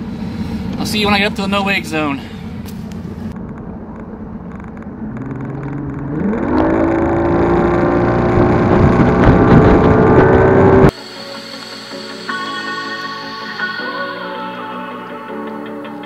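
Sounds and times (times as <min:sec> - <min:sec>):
outboard motor throttling up: 0:02.6 - 0:10.9
music: 0:10.9 - 0:16.0.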